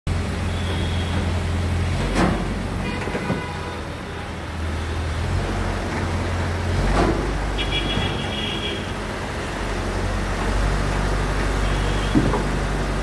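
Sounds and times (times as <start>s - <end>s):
crane engine running: 0.1s - 13.0s.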